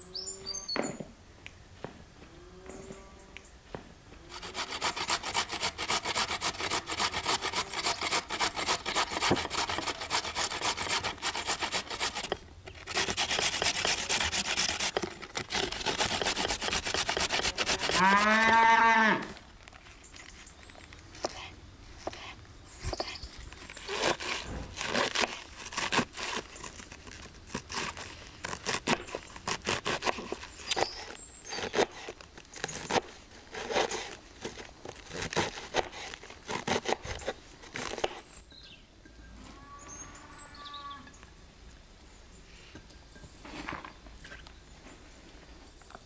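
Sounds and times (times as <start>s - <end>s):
knife shredding cabbage on board: 4.3s - 18.6s, 23.8s - 38.2s.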